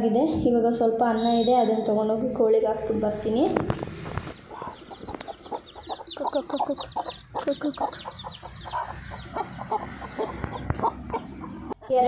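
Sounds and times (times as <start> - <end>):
chicks cheeping: 1.0 - 2.0, 3.2 - 11.8
hen clucking rapidly: 2.9 - 12.0.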